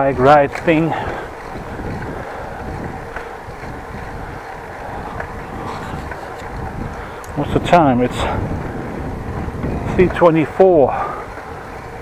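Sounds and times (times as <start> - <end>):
tyres rumbling on path: 0.0 - 12.0
wind buffeting microphone: 0.0 - 12.0
faint ticks: 6.0 - 7.4.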